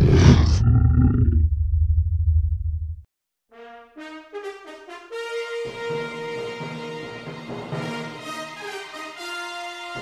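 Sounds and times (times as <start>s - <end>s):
low rumbling roar: 0.0s - 3.0s.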